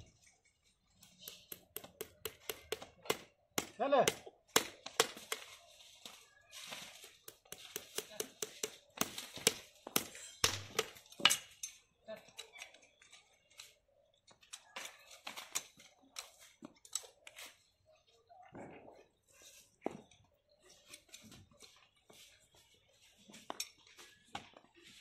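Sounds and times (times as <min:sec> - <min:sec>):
hammer tapping metal shoe: 0:01.2 - 0:05.4, 0:07.2 - 0:11.0.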